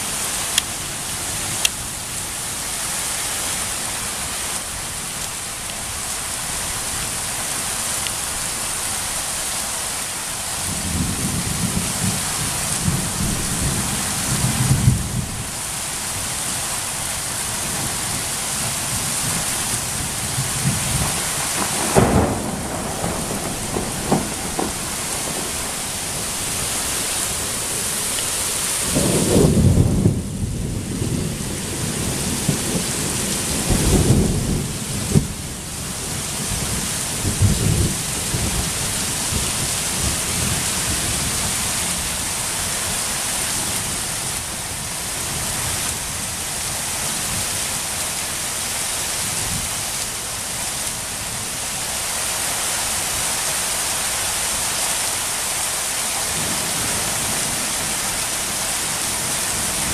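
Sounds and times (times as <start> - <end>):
heavy rain falling: 0.0 - 59.9
thunder rumbling: 10.6 - 42.3.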